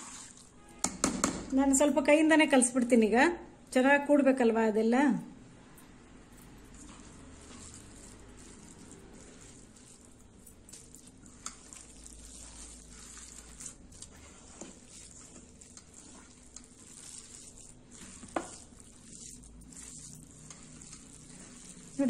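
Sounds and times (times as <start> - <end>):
hand squelching wet rice: 0.0 - 0.6, 6.7 - 22.0.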